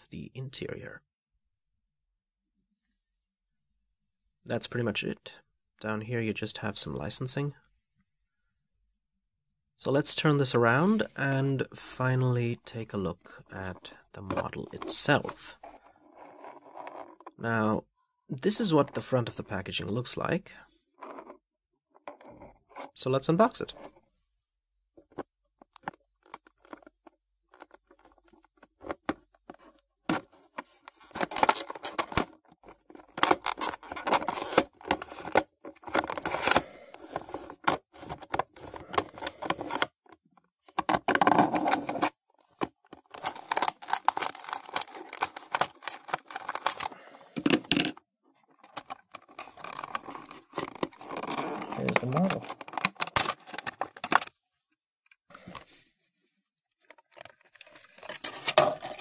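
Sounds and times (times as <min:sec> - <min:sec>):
plastic packaging crinkling: 0:42.7 - 0:47.0, 0:48.5 - 0:54.3.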